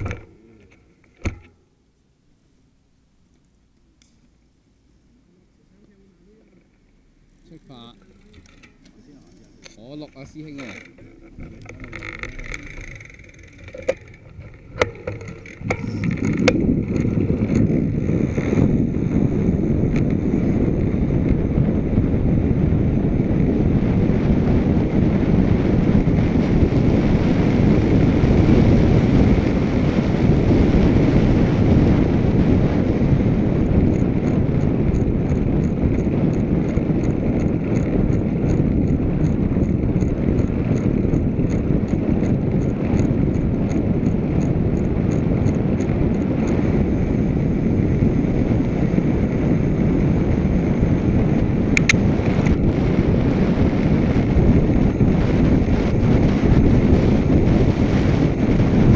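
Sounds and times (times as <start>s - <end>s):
wind rushing over microphone: 0.0s - 1.5s, 9.5s - 58.9s
light regular ticking: 3.3s - 5.1s, 5.8s - 21.5s, 33.0s - 58.8s.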